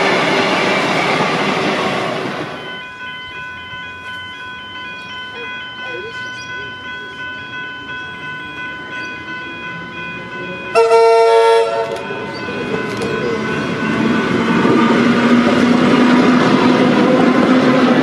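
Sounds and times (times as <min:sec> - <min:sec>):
electric train running: 0:00.0 - 0:18.0
level crossing bells ringing: 0:02.5 - 0:17.7
train horn blast: 0:10.7 - 0:12.1.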